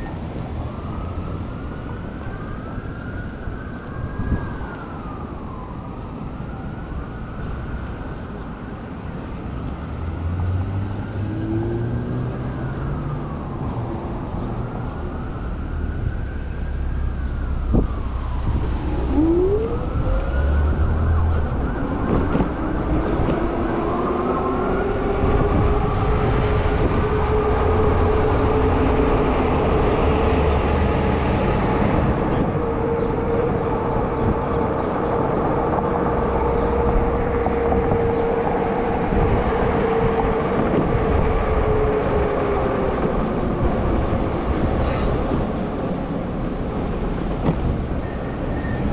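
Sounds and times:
city traffic: 0:00.0 - 0:48.9
emergency vehicle siren wailing: 0:00.0 - 0:48.9
road and wind noise: 0:00.0 - 0:48.9
rising whine: 0:15.3 - 0:34.6.

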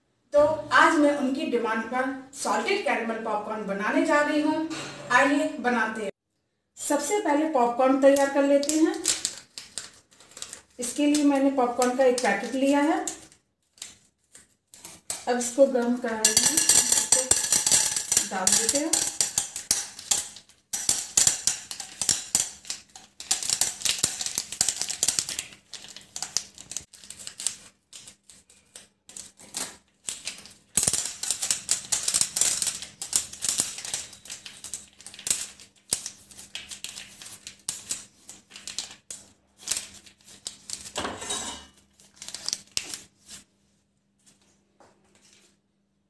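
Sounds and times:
popcorn kernels rattling into pan: 0:16.2 - 0:27.7, 0:30.1 - 0:39.0.

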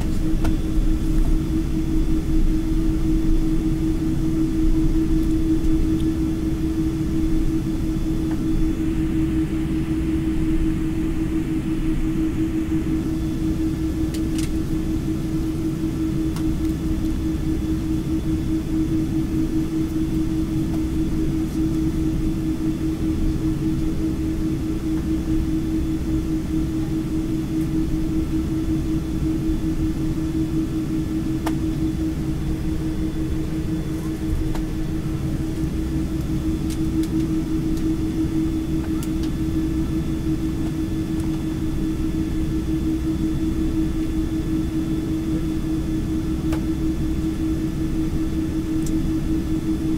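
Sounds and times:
airliner engine drone in cabin: 0:00.0 - 0:49.9.

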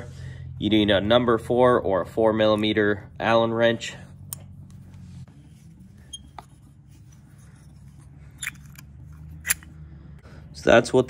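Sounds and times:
low steady hum: 0:00.0 - 0:11.0
metallic wrench clicks: 0:08.4 - 0:09.7.

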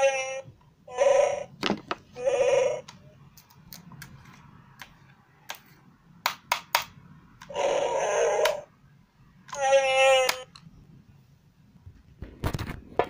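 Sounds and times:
electronic mask growling roar: 0:02.2 - 0:02.8, 0:07.5 - 0:08.7.

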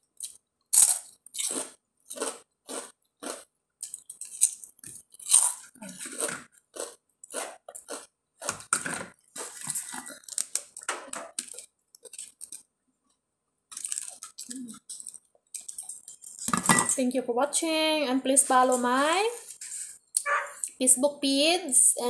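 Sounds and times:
crunching and chewing flatbread: 0:00.0 - 0:16.5.

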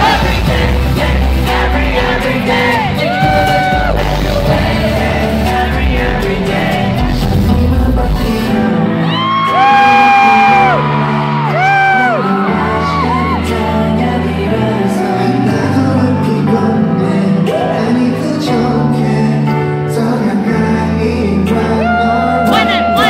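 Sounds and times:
pop song with live singing: 0:00.0 - 0:23.0
audience shouting and whooping: 0:02.5 - 0:04.3, 0:09.0 - 0:13.9, 0:21.8 - 0:23.0.

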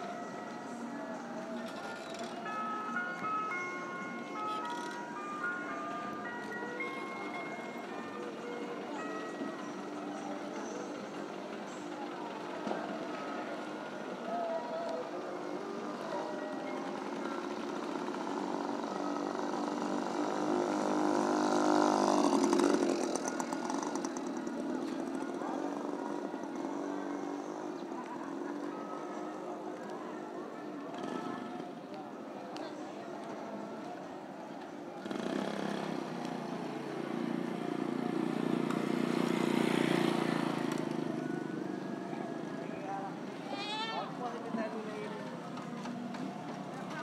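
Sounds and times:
small motorcycle engine passing: 0:17.0 - 0:28.7, 0:35.0 - 0:47.0.

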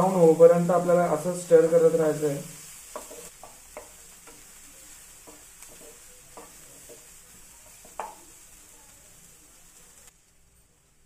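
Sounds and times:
onions sizzling in a pan: 0:00.0 - 0:11.0
utensil scraping a pan: 0:02.5 - 0:08.5.

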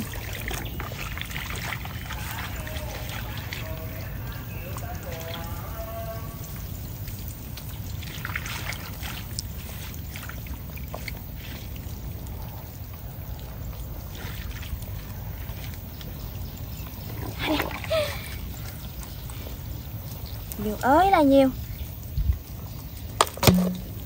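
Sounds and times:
hands scooping in mud and water: 0:00.0 - 0:05.9, 0:07.2 - 0:20.4
small water splashes: 0:00.0 - 0:24.0
wet squelches: 0:00.0 - 0:24.0.

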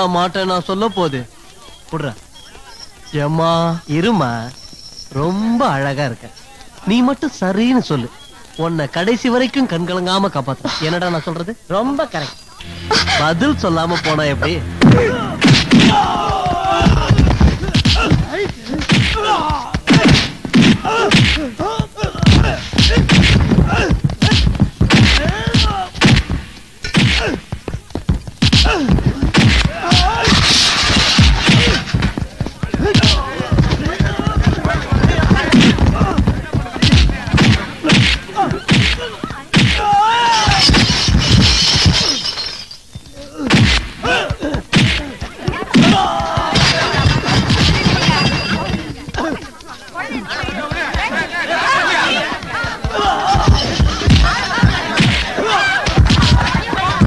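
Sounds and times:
men yelling and crying: 0:12.6 - 0:26.0, 0:28.5 - 0:40.9, 0:43.1 - 0:57.0
punch thuds and smacks: 0:15.4 - 0:41.6, 0:43.4 - 0:46.8, 0:52.7 - 0:57.0
something shattering: 0:40.4 - 0:42.9, 0:46.4 - 0:49.0.

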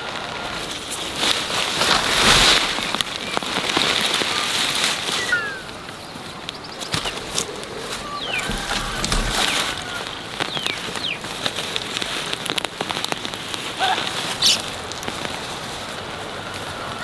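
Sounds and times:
hands digging in soil: 0:06.8 - 0:17.0.

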